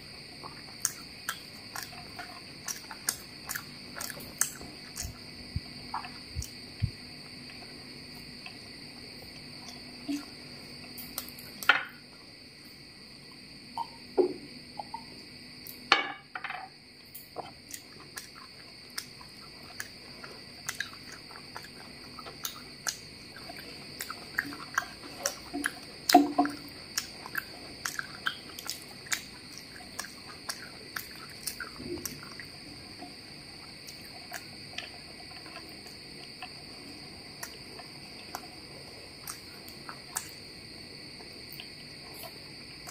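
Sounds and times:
soft chewing: 0.0 - 11.7, 17.0 - 42.9
high cricket-like chirring: 0.0 - 42.9
wet mouth clicks: 0.4 - 7.0, 17.6 - 32.5, 33.8 - 36.6, 37.4 - 38.5, 39.2 - 40.4.

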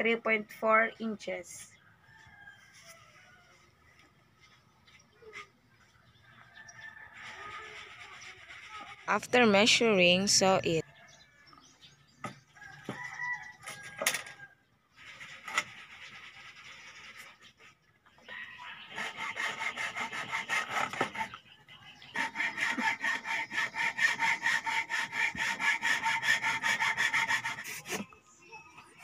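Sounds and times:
hacksaw cutting bamboo: 15.1 - 17.4, 18.9 - 21.4, 22.1 - 28.0.

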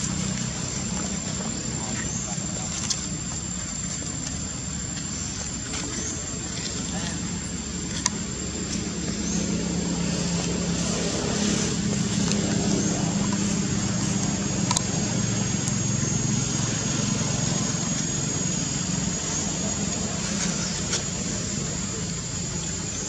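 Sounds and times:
vehicle engine rumble: 0.0 - 23.0.

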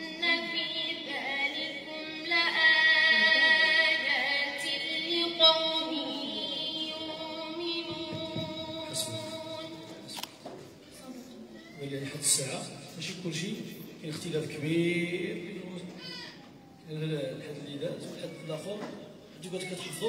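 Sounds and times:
woman reciting melodically: 0.0 - 11.5.

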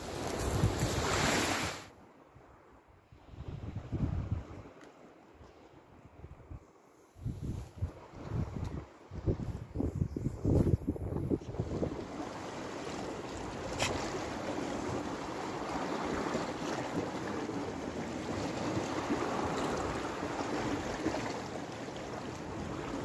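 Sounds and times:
sea water rushing: 0.0 - 1.9, 11.0 - 23.0
wind: 0.0 - 23.0.

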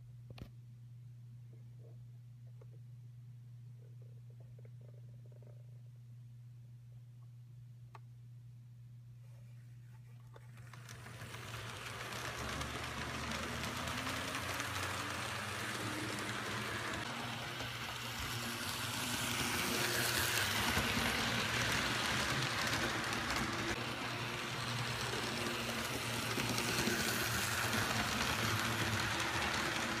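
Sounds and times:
model train wheels clattering: 10.4 - 30.0.

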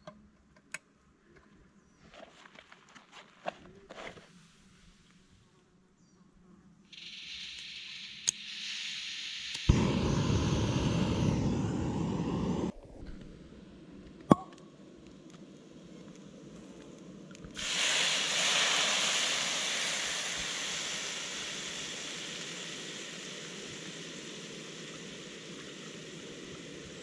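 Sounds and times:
wine sizzling in hot pan: 6.9 - 12.8, 16.4 - 27.0.

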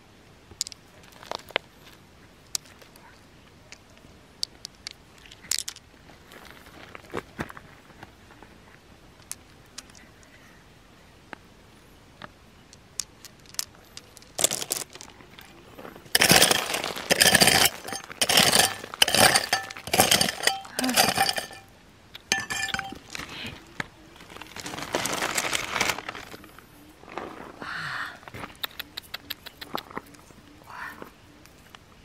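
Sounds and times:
hard objects clinking and scraping: 13.2 - 15.5, 16.1 - 23.3.

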